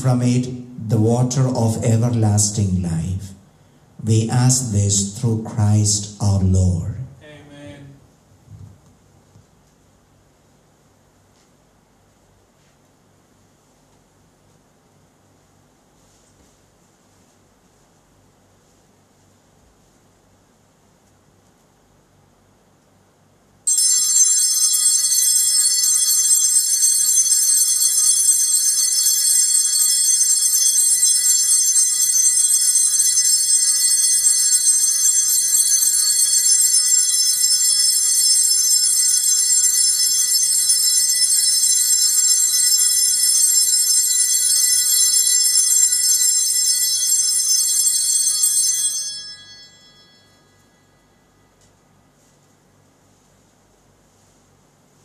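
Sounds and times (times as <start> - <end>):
altar bells ringing: 23.7 - 51.5.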